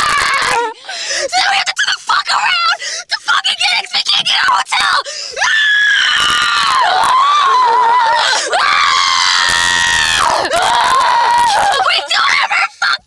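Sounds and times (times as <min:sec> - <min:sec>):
high-pitched screaming: 0:05.5 - 0:11.9.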